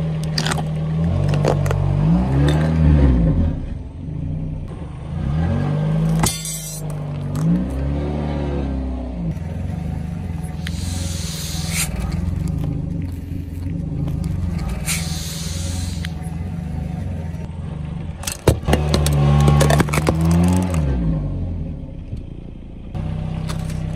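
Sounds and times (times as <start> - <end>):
car engine running low: 0.0 - 23.9
tyres rolling on asphalt: 9.2 - 21.1
hiss: 10.6 - 12.0, 14.7 - 16.2.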